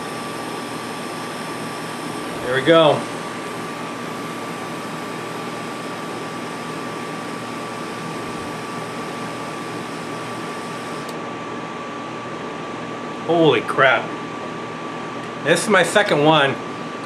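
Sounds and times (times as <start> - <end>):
room noise: 8.0 - 10.2.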